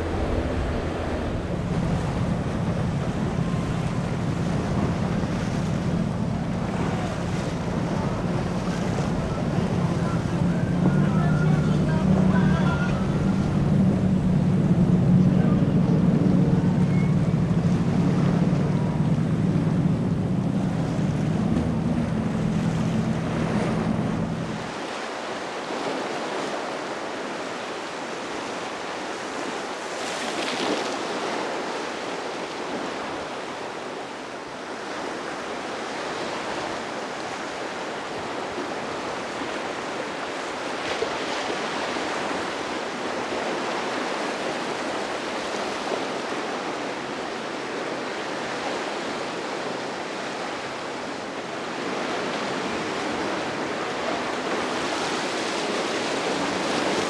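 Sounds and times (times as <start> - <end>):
wind on microphone: 0.0 - 24.8
motorboat engines droning: 0.0 - 25.2, 32.0 - 57.0
waves and rushing water: 0.0 - 57.0.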